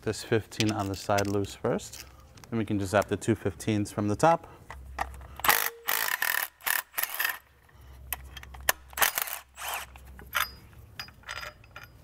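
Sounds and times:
ratchet ratcheting and scraping: 5.1 - 7.5, 8.2 - 12.0.

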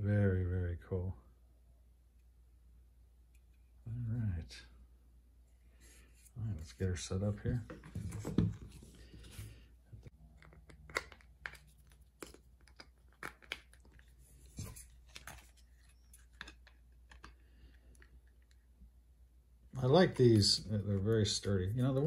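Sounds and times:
plastic pieces clicking: 10.4 - 14.0.

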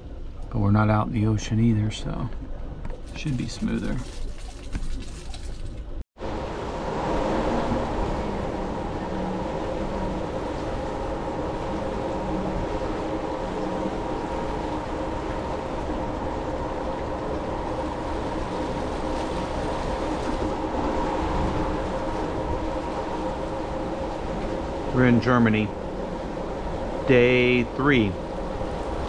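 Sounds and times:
ship engine rumble: 0.0 - 29.0.

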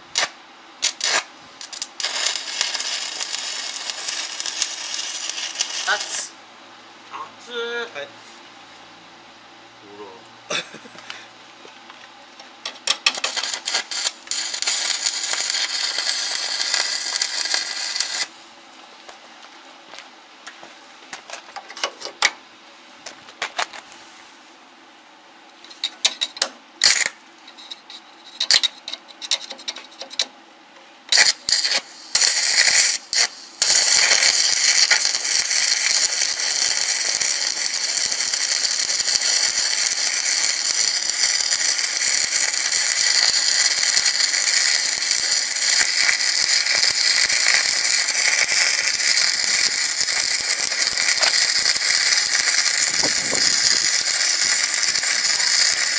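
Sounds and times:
welding arc strikes and sputters: 0.0 - 6.3, 12.6 - 18.3, 25.7 - 27.2, 31.1 - 55.9
welding arc crackling: 0.0 - 6.4, 12.6 - 18.4, 25.7 - 27.2, 31.1 - 55.9.

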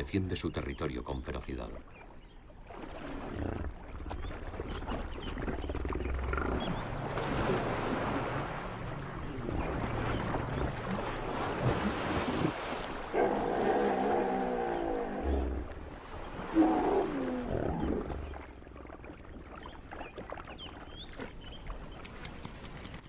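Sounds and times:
heavy water splashing: 2.6 - 22.7
hippopotamus grunting bellows: 5.6 - 7.0, 13.1 - 18.4.

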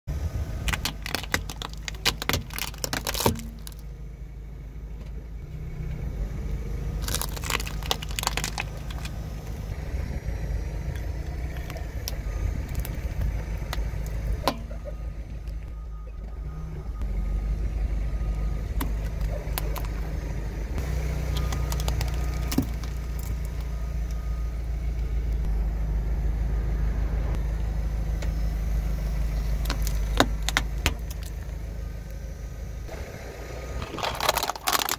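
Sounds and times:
low rumble of car engine: 0.0 - 34.9
car tyre crushing plastic toys: 0.5 - 3.9, 6.9 - 9.7, 11.0 - 14.8, 18.7 - 20.2, 20.9 - 23.8, 29.5 - 31.6, 33.8 - 34.9
sharp plastic cracks and snaps: 0.6 - 3.9, 7.0 - 9.2, 21.4 - 23.7, 29.6 - 31.4, 33.9 - 34.9.

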